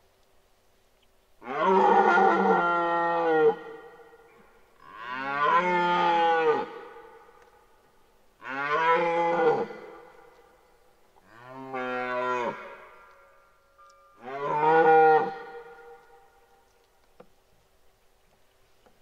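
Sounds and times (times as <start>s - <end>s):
deer stag roaring: 1.4s - 3.9s, 4.8s - 6.9s, 14.2s - 16.2s.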